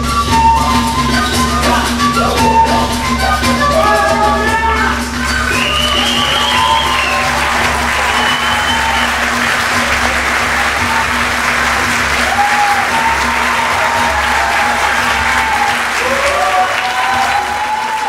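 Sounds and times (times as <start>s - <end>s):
music playing: 0.0s - 18.0s
audience applauding: 5.2s - 18.0s.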